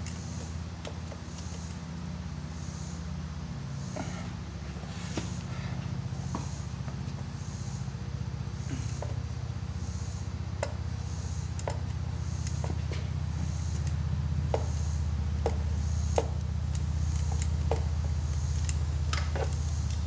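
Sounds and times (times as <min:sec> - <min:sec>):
steady low hum: 0:00.0 - 0:20.0
metallic clinks of hand tools: 0:16.2 - 0:20.0.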